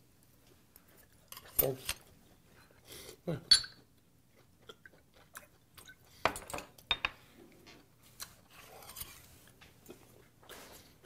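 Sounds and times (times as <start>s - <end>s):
glass and tableware clinking: 3.5s - 3.8s.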